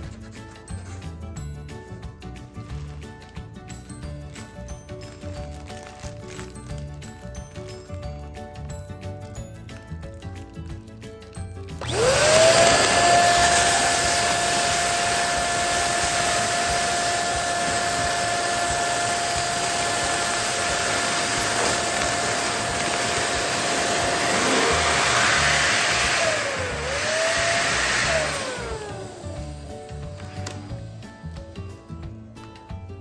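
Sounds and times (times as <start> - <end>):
electric balloon pump humming: 11.7 - 31.6.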